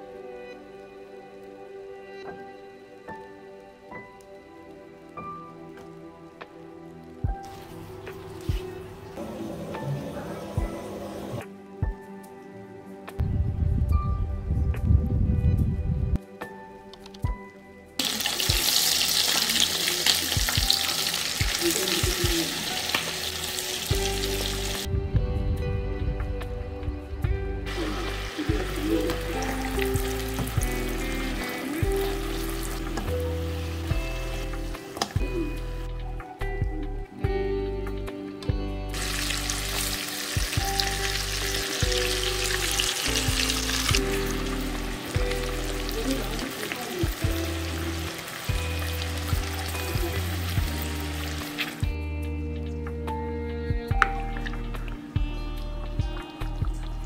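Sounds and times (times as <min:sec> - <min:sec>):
food frying in hot oil: 0:18.0 - 0:24.9, 0:27.7 - 0:35.1, 0:38.9 - 0:51.9
soft low thumps: 0:24.9 - 0:27.6.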